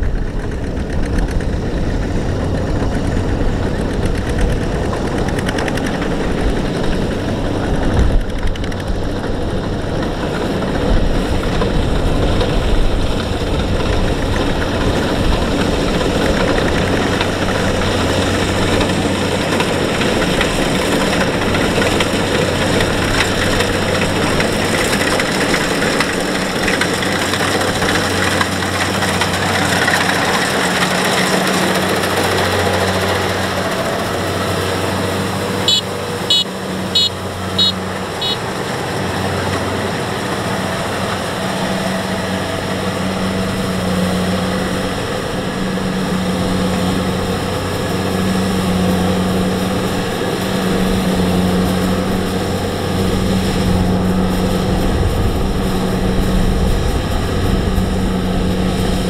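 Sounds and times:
combine harvester diesel engine: 0:00.0 - 0:59.0
short high chirps: 0:35.7 - 0:38.4.

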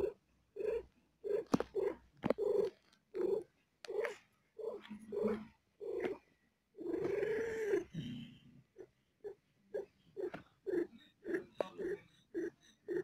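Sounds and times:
cat crying: 0:06.8 - 0:07.9.

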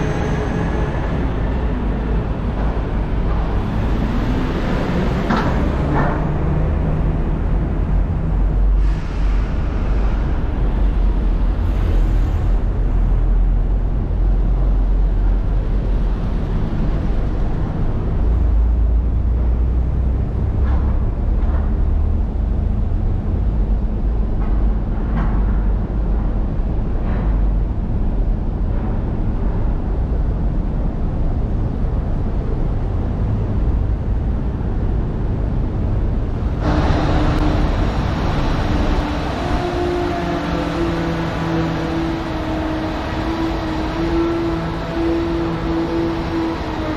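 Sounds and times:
low rumble of traffic: 0:00.0 - 0:46.9.

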